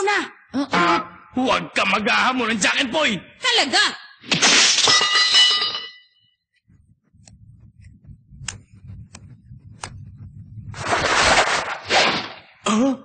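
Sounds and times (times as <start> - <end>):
low rumbling drone: 6.6 - 11.8
footsteps as sharp ticks: 7.1 - 10.1.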